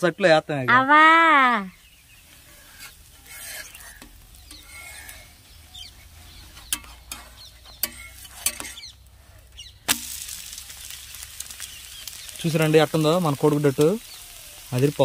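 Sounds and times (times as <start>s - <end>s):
light sizzle: 0.0s - 15.0s
metal spatula scraping a griddle: 2.1s - 10.2s.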